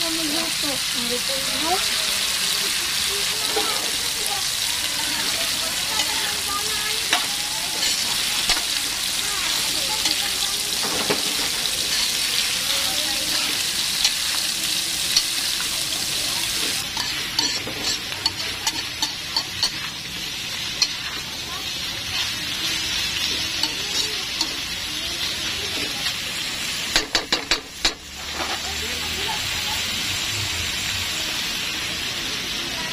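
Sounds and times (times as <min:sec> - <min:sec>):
food sizzling in a wok: 0:00.0 - 0:32.9
spatula scraping a pan: 0:05.2 - 0:08.8, 0:09.5 - 0:12.5, 0:16.4 - 0:28.8.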